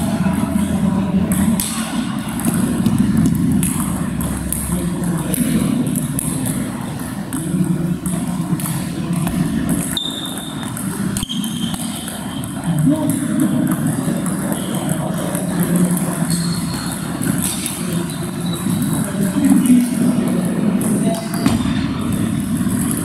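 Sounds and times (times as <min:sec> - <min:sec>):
table tennis balls clicking: 0:00.3 - 0:23.0.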